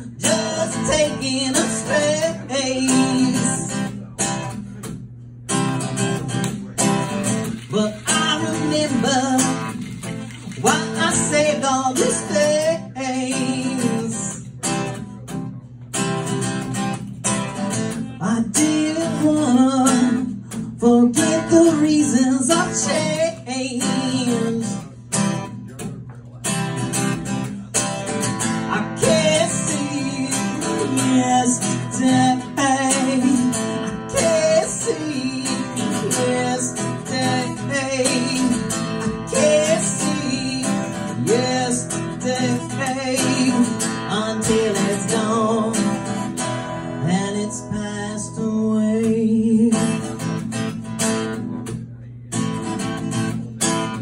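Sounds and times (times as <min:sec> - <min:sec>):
man singing: 0:00.0 - 0:04.3, 0:07.0 - 0:14.7, 0:18.1 - 0:25.0, 0:28.2 - 0:50.6
strummed acoustic guitar: 0:00.0 - 0:54.0.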